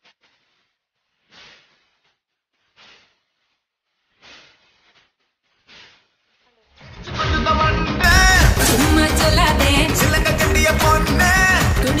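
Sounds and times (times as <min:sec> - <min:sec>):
airy whoosh effects: 0:08.0 - 0:10.2.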